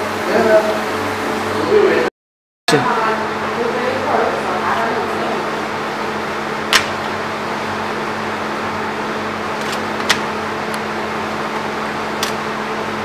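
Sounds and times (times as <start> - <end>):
machine hum: 2.7 - 13.0
sharp clicks of cds: 6.7 - 7.0.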